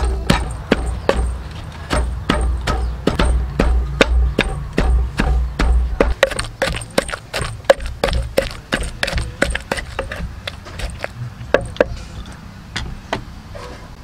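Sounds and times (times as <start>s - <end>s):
pestle pounding in wooden mortar: 0.0s - 12.0s.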